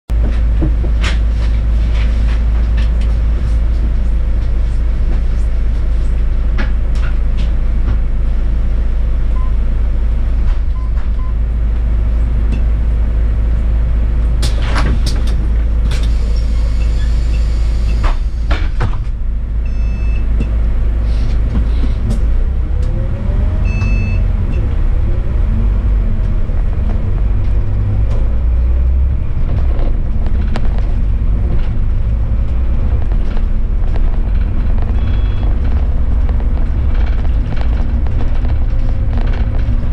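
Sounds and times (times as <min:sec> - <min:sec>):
bus diesel engine rumbling: 0:00.1 - 0:39.9
air brake hiss: 0:16.0 - 0:18.5
short electronic beeps: 0:19.6 - 0:20.3, 0:23.6 - 0:24.3, 0:35.0 - 0:35.5.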